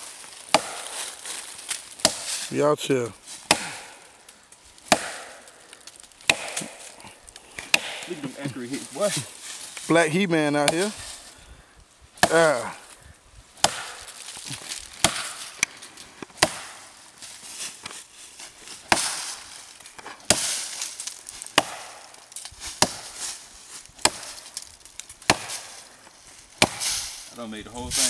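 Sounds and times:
axe chopping into log: 0.5 - 1.2, 2.0 - 2.4, 3.4 - 4.0, 4.8 - 5.5, 6.2 - 7.0, 7.6 - 8.3, 10.6 - 11.0, 12.2 - 12.8, 13.6 - 15.7, 16.3 - 16.8, 18.9 - 19.4, 20.0 - 20.7, 21.5 - 22.2, 22.8 - 23.2, 24.0 - 24.4, 25.2 - 25.8, 26.6 - 27.1.

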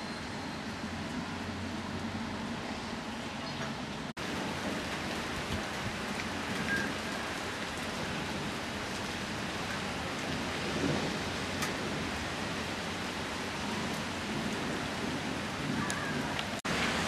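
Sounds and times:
heavy rain falling: 3.9 - 17.0.

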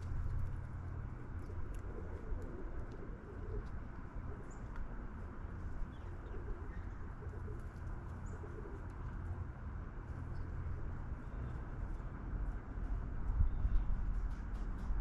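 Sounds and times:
steady low rumble: 0.0 - 15.0
doves cooing: 1.3 - 4.7, 5.8 - 9.2.

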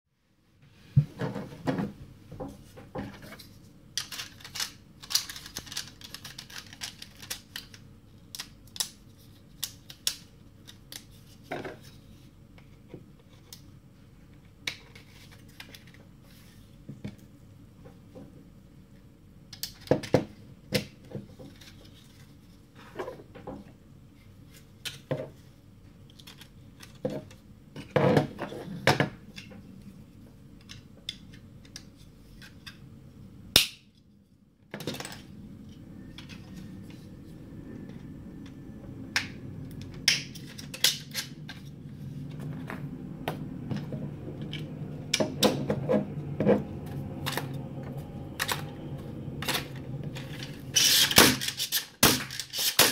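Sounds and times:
plastic parts clicking and rattling: 3.0 - 11.9, 26.1 - 28.0.

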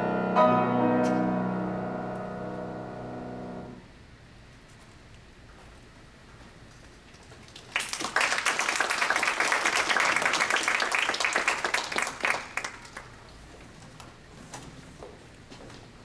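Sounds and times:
audience applauding: 7.5 - 13.3.

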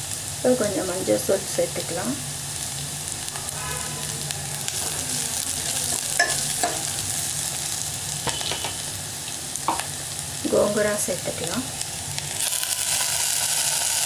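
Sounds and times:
vegetables sizzling in hot oil: 0.0 - 14.0.

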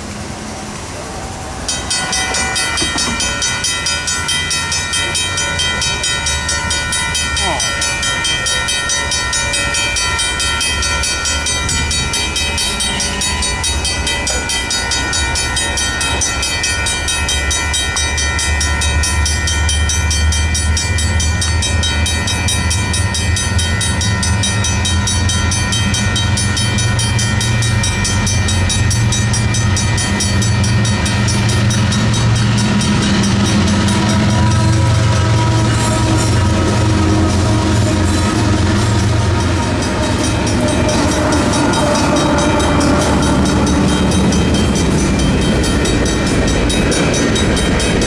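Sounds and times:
freight train diesel rumble: 0.0 - 48.0
railroad crossing bells ringing: 0.0 - 48.0.

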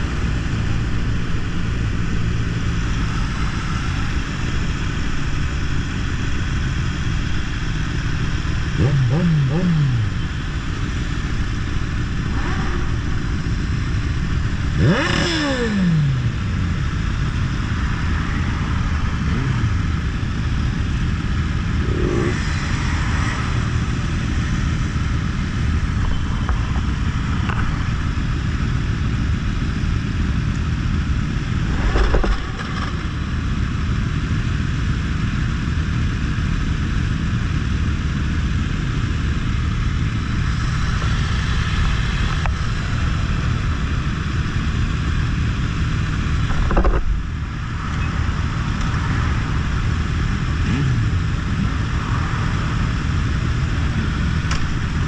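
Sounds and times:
motorcycle engines rumbling: 0.0 - 55.0
engine bursts: 12.1 - 16.5.

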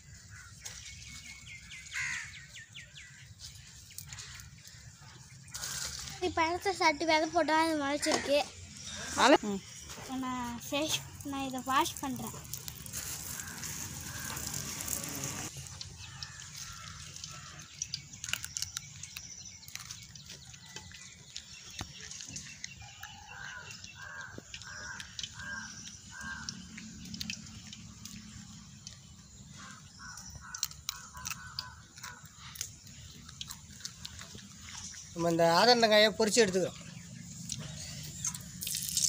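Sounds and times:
cucumber being bitten and chewed: 3.4 - 6.2, 12.1 - 35.2, 37.3 - 39.0
water splashing over cucumber: 11.0 - 19.0, 38.3 - 39.0.

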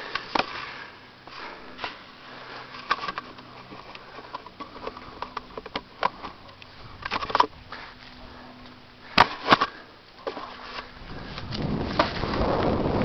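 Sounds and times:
bike rolling on dirt trail: 0.0 - 13.0
bike clicks knocks and rattles: 2.7 - 7.6.

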